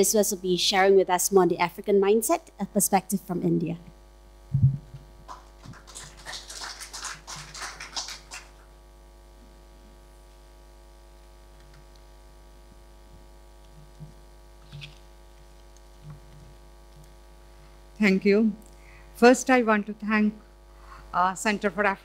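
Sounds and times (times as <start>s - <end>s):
mains hum: 0.0s - 22.0s
thump on microphone: 4.5s - 5.1s
audience applause: 5.3s - 8.6s.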